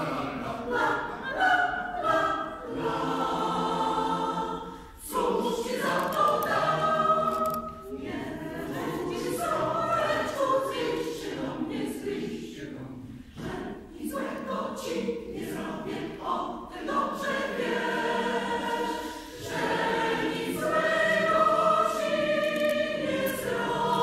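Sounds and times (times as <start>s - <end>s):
choir singing unaccompanied: 0.0s - 24.0s.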